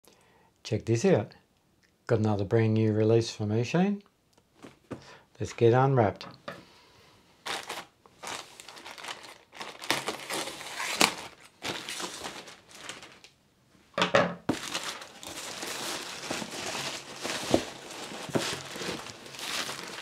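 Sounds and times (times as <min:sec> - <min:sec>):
plastic bag crinkling: 0:07.4 - 0:13.4, 0:14.5 - 0:20.0.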